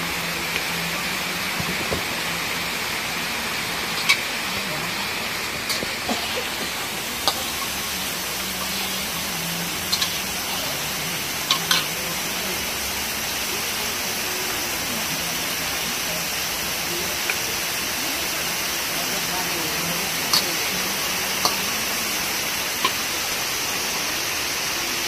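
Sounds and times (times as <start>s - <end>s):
gas stove hiss: 0.0s - 25.0s
metal spatula clicking on wok: 11.5s - 11.9s.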